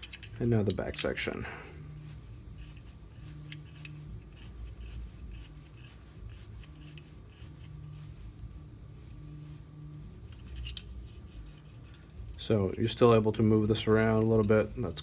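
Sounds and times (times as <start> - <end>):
hex key rubbing and clicking: 0.0 - 1.2, 2.4 - 8.0, 10.2 - 11.9.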